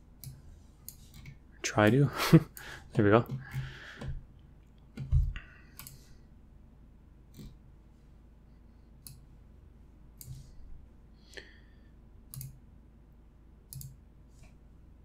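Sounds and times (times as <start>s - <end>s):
computer mouse clicking: 0.2s - 1.4s, 4.9s - 6.0s, 9.0s - 9.2s, 10.2s - 10.4s, 12.3s - 12.6s, 13.7s - 14.6s.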